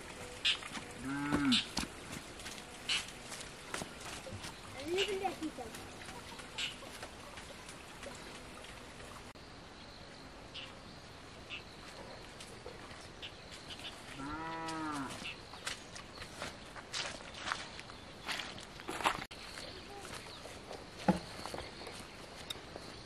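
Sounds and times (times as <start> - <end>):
footsteps on a muddy path: 0.0 - 9.3, 11.5 - 23.0
rural background: 0.0 - 23.0
farm animal calling: 0.2 - 1.8, 6.0 - 6.9.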